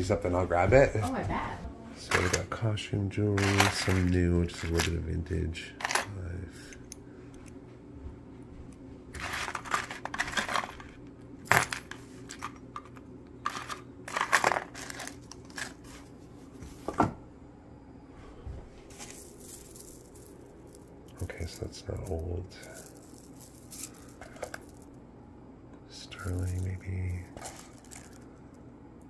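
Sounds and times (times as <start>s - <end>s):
jewelry clinking in cardboard box: 3.4s - 4.9s, 13.5s - 15.8s, 22.6s - 24.8s, 27.3s - 28.2s.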